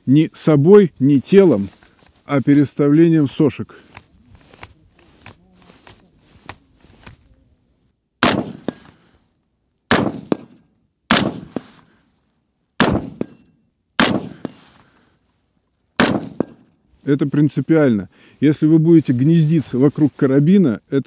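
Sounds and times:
rifle shots: 8.2 - 8.9, 9.9 - 11.9, 12.8 - 14.7, 16.0 - 16.7
short metallic ring: 13.2 - 13.8.

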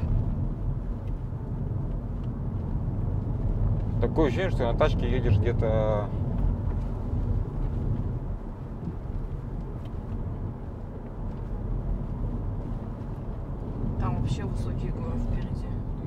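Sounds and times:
car interior rumble: 0.0 - 16.0.

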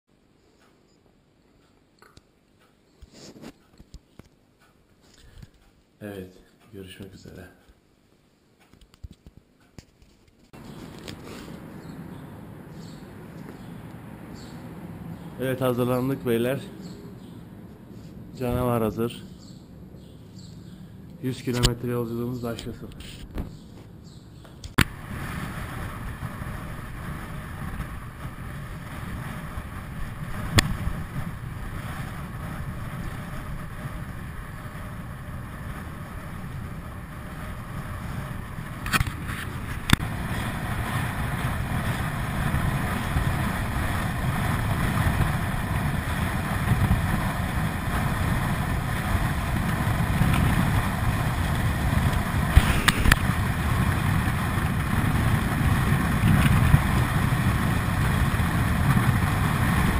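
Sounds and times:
wind buffeting microphone: 23.2 - 59.9
tyres rumbling on asphalt: 24.8 - 59.9.

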